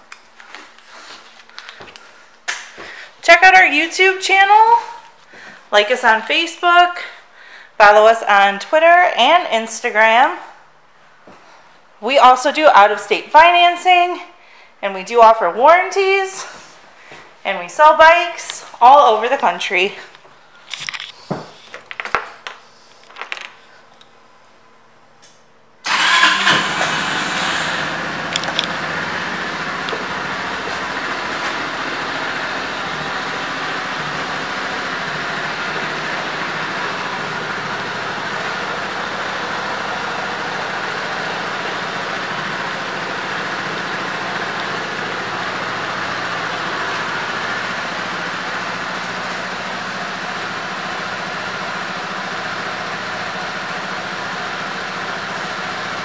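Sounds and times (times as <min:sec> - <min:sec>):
scooter engine starting and idling: 0:25.8 - 0:56.0.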